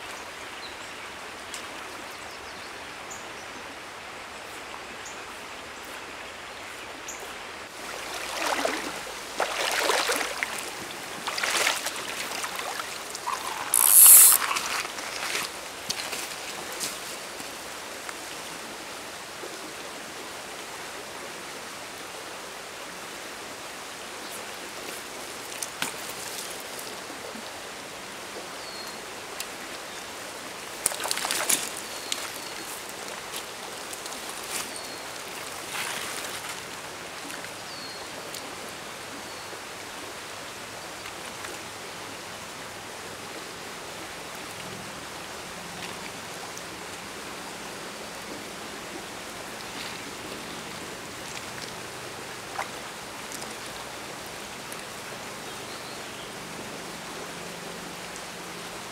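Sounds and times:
stream running: 0.0 - 58.9
fish splashing at surface: 12.5 - 15.5.

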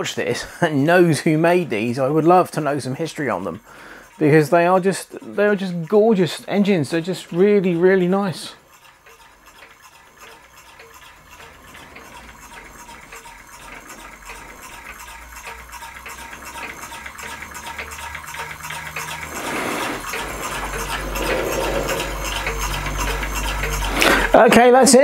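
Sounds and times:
solenoid engine fast ticking: 0.0 - 25.0.

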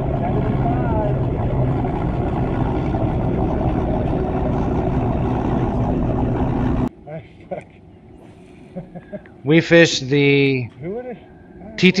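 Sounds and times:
outboard motors idling: 0.0 - 6.9.

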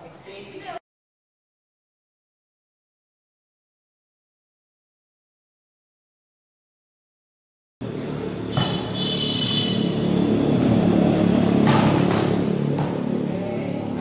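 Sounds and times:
volleyball hits: 8.0 - 9.4, 11.4 - 13.3.

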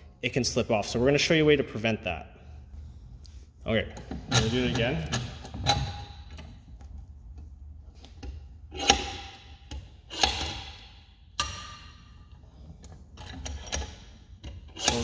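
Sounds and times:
vise metallic clanks: 8.7 - 12.2.

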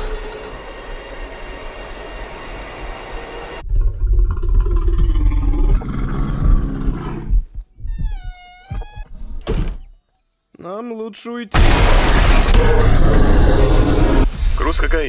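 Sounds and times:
high-pitched wavering whine: 0.0 - 3.6
bear roaring: 3.6 - 7.4, 12.5 - 14.3.

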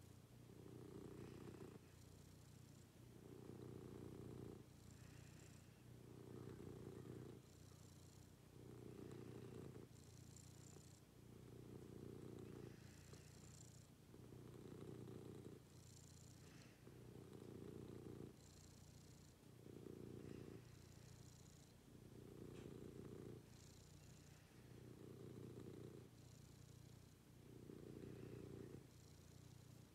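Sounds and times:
cat purring: 0.0 - 29.9.

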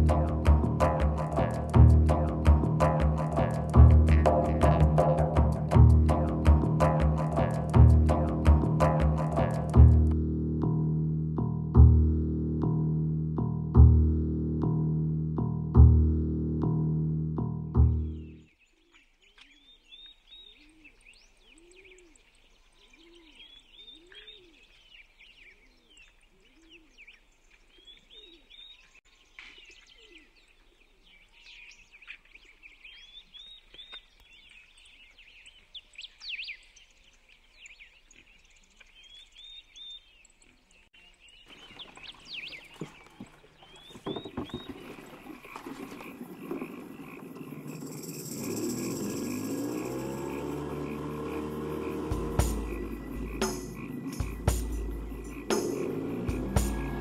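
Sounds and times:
low repeating call: 0.0 - 10.2, 49.8 - 57.0
songbirds singing: 18.0 - 57.0.

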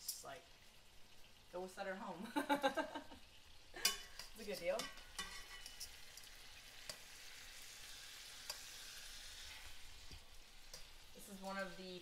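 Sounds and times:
metal tongs clicking on pan: 0.0 - 0.3, 3.8 - 7.1, 8.4 - 8.7, 9.5 - 11.8
steaks sizzling in pan: 0.0 - 12.0.

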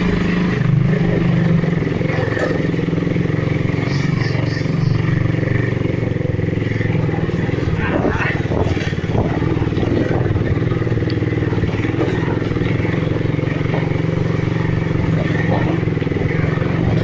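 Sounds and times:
motorcycle engine running: 0.0 - 17.0.

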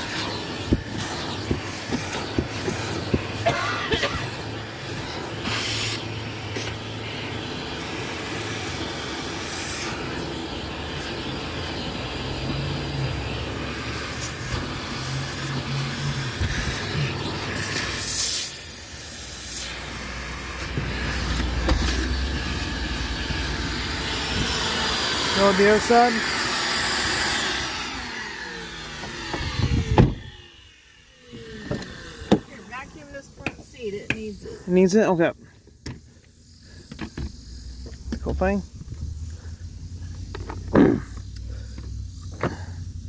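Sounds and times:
nozzle sucking on carpet: 0.0 - 3.5, 4.2 - 43.0
shop vac running: 0.0 - 35.3.

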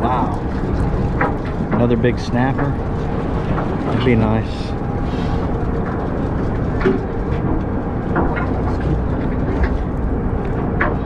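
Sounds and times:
boat engine rumbling: 0.0 - 11.0.

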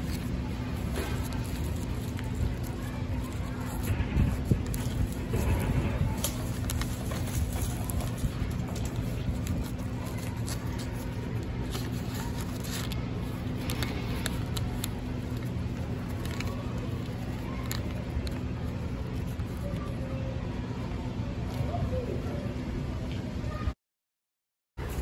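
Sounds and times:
paper crinkling and rustling: 0.0 - 20.1
steady low hum: 0.0 - 23.7.

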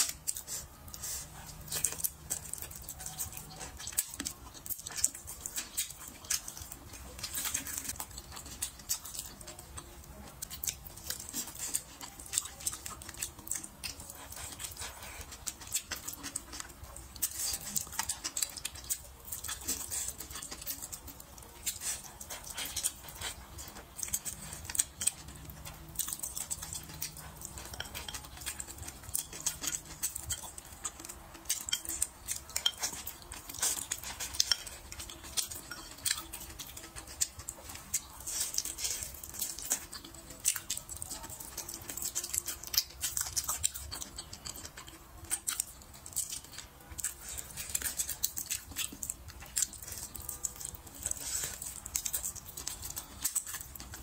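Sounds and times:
wet chewing and lip smacks: 0.0 - 54.0
chopsticks clacking on bowl: 24.0 - 40.8, 41.4 - 50.7.

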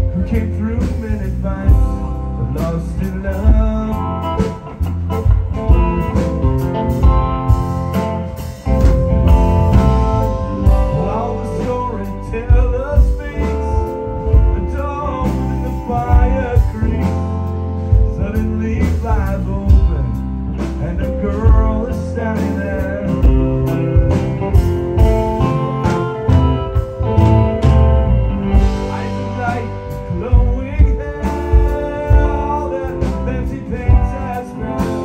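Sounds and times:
bass guitar: 0.0 - 35.0
drums: 0.0 - 35.0
electric guitar lead lines: 0.0 - 35.0.

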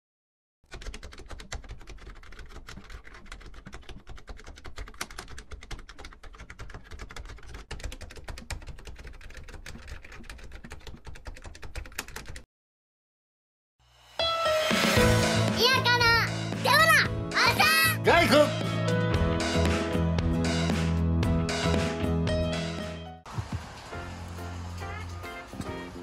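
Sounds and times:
keyboard keys clicking: 0.7 - 12.4.

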